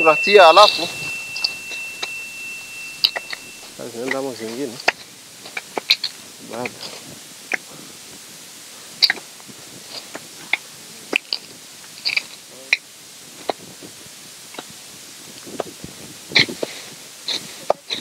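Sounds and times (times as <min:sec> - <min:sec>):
dry leaves crackling: 0:00.0 - 0:14.1.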